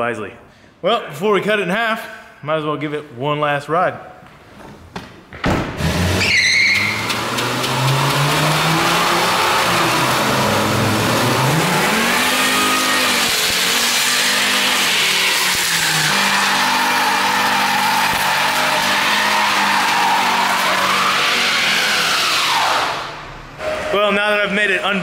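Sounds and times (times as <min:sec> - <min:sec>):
car engine revving: 0:05.8 - 0:23.9
tyres squealing: 0:06.1 - 0:07.4, 0:11.4 - 0:22.9.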